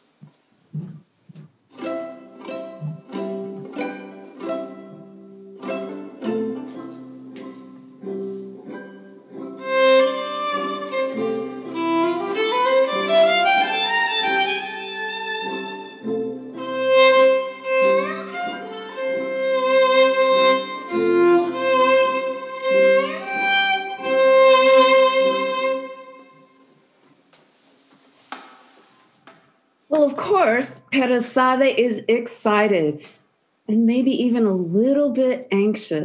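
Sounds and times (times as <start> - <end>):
solo violin melody: 1.8 - 26.7.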